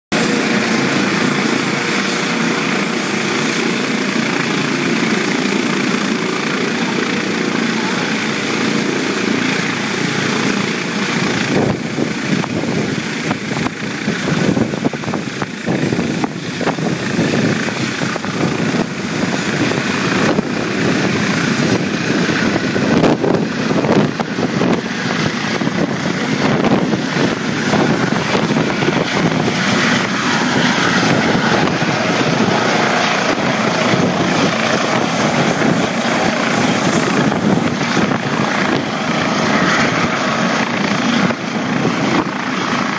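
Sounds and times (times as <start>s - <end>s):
helicopter rotor noise: 0.1s - 42.9s
high turbine whine: 0.1s - 42.9s.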